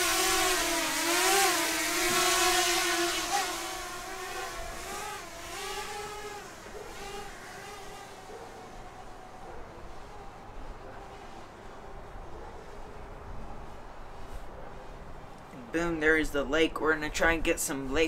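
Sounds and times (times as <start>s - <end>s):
drone propellers whining: 0.0s - 12.0s.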